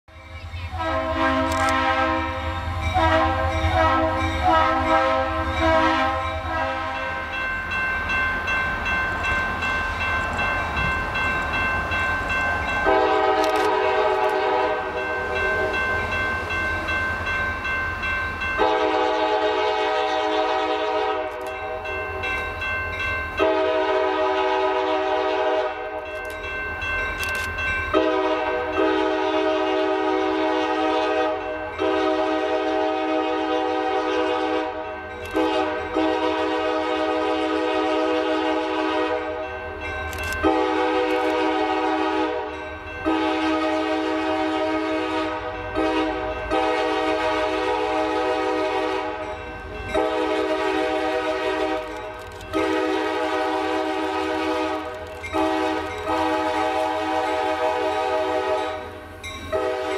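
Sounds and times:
locomotive horn blasts: 0.6 - 7.3, 12.8 - 15.7, 18.6 - 21.5, 23.4 - 26.0, 28.0 - 39.4, 40.4 - 49.3, 49.9 - 59.9.

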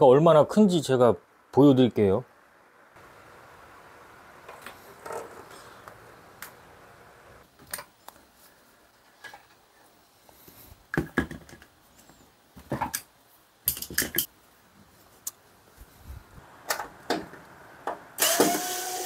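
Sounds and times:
tools clicking and knocking: 13.7 - 14.3.

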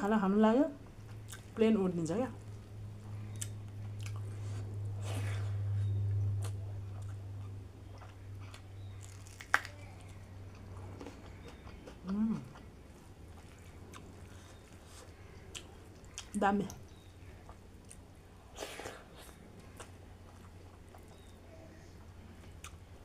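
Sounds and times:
airplane passing overhead: 0.8 - 16.3
chewing and wet eating clicks: 3.3 - 4.2.

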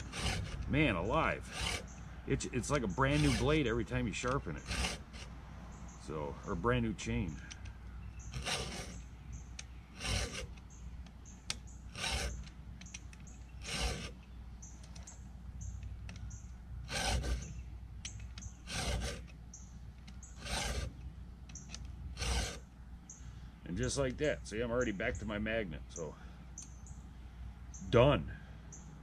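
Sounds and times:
files rasping across chainsaw chain: 0.0 - 5.4, 6.1 - 19.4, 20.0 - 22.7.

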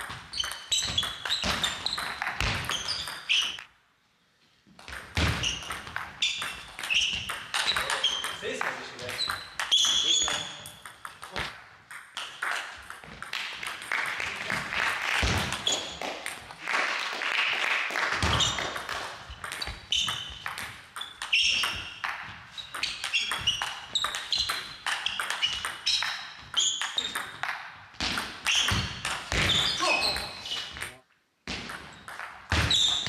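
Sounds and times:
shoes squeaking on gym floor: 0.0 - 3.7, 4.9 - 11.4, 15.5 - 16.1, 18.2 - 33.0.

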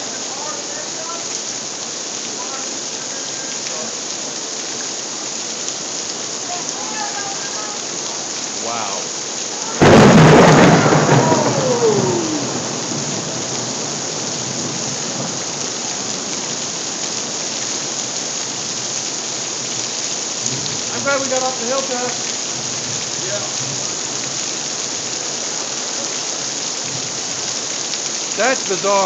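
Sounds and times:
hail and rain pattering: 0.0 - 29.0
thunder clap rumbling: 9.8 - 15.4.

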